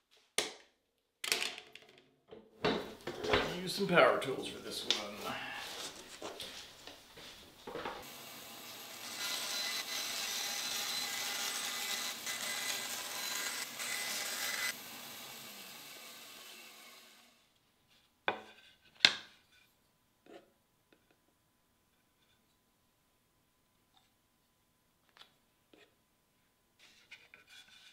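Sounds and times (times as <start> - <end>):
bandsaw cutting plastic sheet: 8.0 - 17.2.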